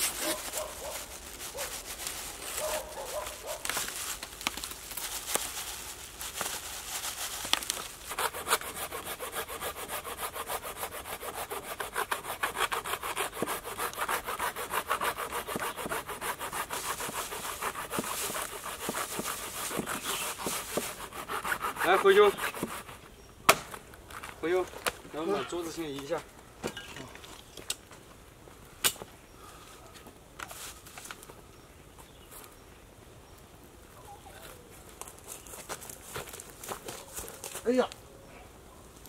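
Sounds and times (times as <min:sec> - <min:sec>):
hand saw cutting log: 0:00.0 - 0:03.2, 0:08.0 - 0:23.0.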